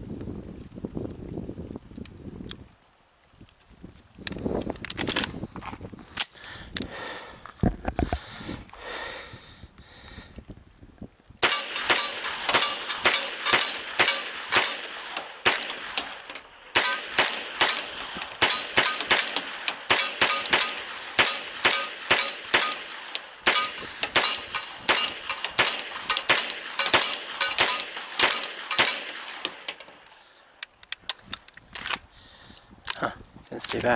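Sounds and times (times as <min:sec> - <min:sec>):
metallic ring of steel target: 0:11.4 - 0:29.7
rapid gunshots: 0:11.4 - 0:29.7.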